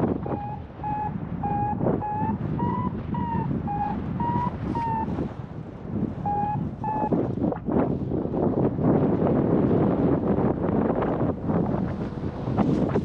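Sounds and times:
variometer beeping: 0.0s - 5.1s, 6.2s - 7.2s
wind rushing over microphone: 0.0s - 13.0s.

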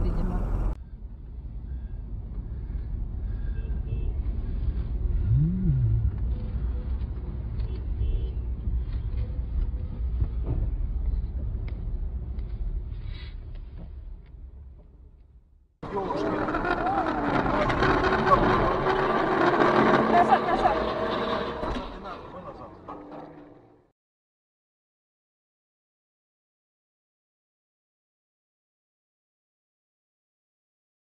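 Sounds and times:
vehicle road and engine rumble: 0.0s - 23.9s
short rising and falling tone: 5.2s - 6.3s.

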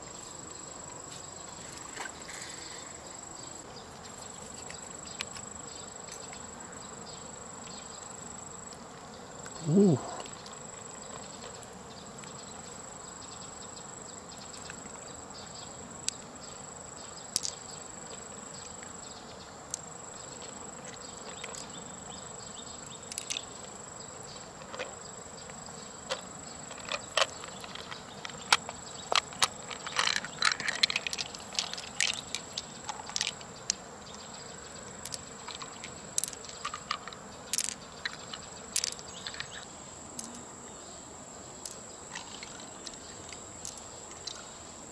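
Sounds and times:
high-pitched insect call: 0.0s - 44.9s.

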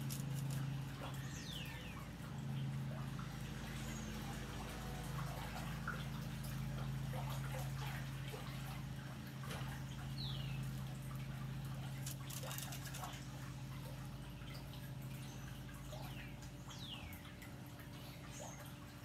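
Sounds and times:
steady low hum: 0.0s - 19.0s
water trickling and dripping: 0.0s - 19.0s.

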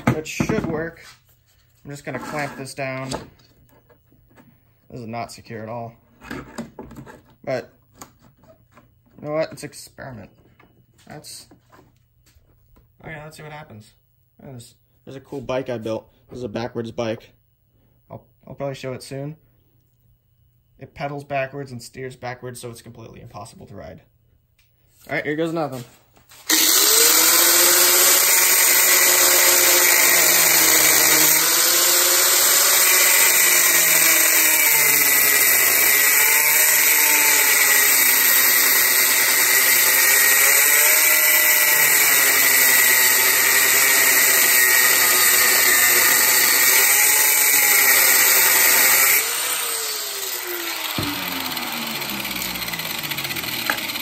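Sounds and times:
angle grinder grinding stone: 2.0s - 2.8s, 26.5s - 54.0s
grinder spinning down: 26.5s - 54.0s.

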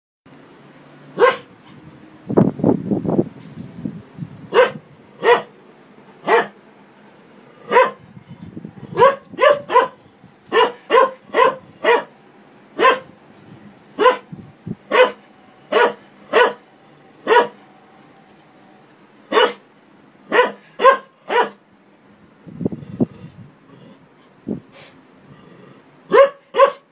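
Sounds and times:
dog barking: 1.2s - 1.5s, 4.5s - 5.5s, 6.2s - 6.6s, 7.7s - 8.0s, 8.9s - 12.1s, 12.8s - 13.1s, 14.0s - 14.3s, 14.9s - 16.6s, 17.2s - 17.6s, 19.3s - 19.6s, 20.3s - 21.6s, 26.1s - 26.9s.

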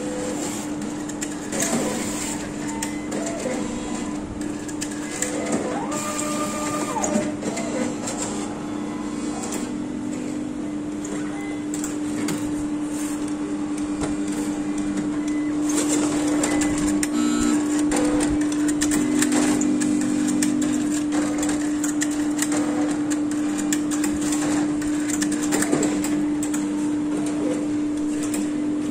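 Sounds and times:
analyser machine hum: 0.0s - 24.0s
short motor whirs: 5.0s - 8.5s.

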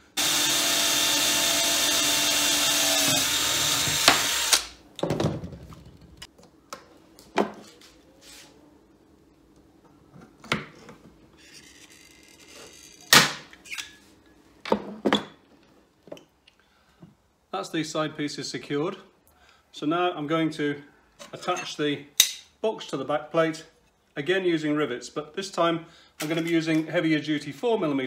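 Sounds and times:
cordless drill drilling metal: 0.1s - 4.8s.

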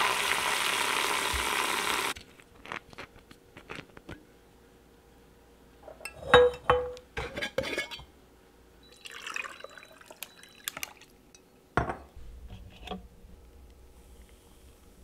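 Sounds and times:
glass jars clinking: 5.9s - 8.0s
coffee poured over ice: 9.0s - 11.0s.

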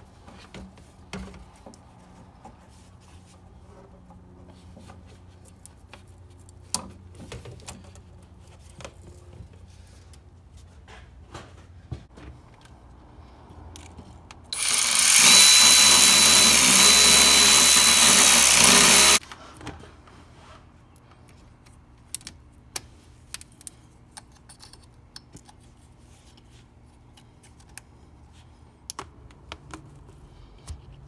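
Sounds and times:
electric ratchet whining: 14.5s - 19.2s.

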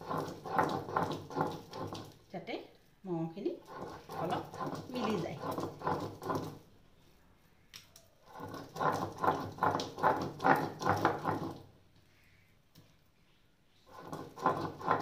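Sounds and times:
stone pestle crushing fish: 0.0s - 2.2s, 3.7s - 6.6s, 8.3s - 11.6s, 13.9s - 15.0s.

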